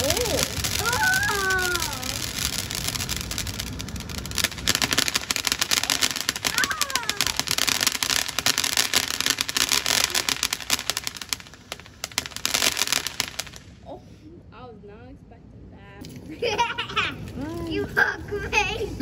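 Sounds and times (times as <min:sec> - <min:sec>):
firework spraying sparks: 0:00.0 - 0:13.8.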